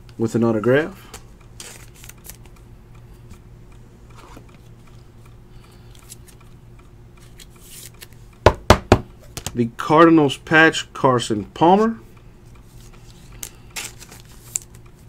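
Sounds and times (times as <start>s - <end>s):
steady low hum: 0.0s - 15.0s
trading cards clicking and rustling: 1.1s - 2.6s, 7.2s - 8.2s, 12.7s - 15.0s.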